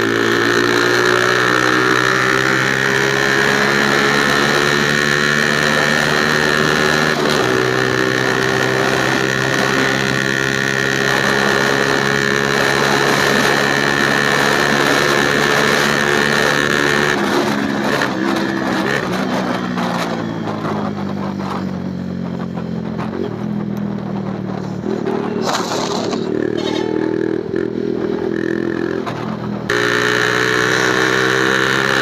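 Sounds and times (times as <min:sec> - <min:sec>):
motorcycle engine running: 0:00.0 - 0:32.0.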